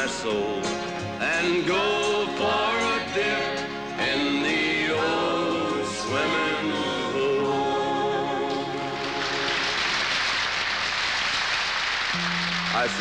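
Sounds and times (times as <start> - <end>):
choir singing country song: 0.0 - 10.0.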